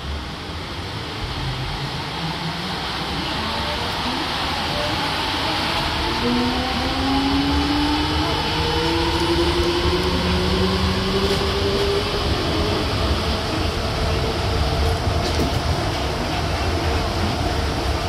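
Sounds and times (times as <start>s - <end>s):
train inverter whining: 0.0s - 18.0s.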